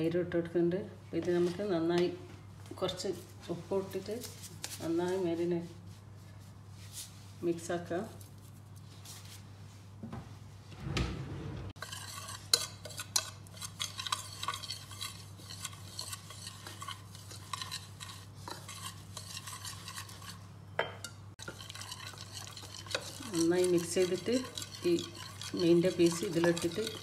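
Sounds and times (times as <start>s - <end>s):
whisk scraping a ceramic bowl: 11.7s - 27.0s.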